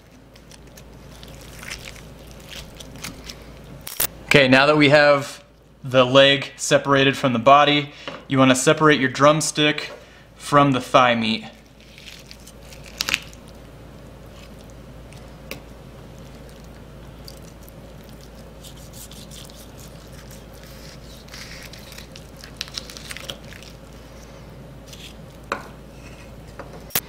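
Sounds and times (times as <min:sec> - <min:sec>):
knife squishing through meat: 0:00.0 - 0:03.7, 0:16.1 - 0:24.0.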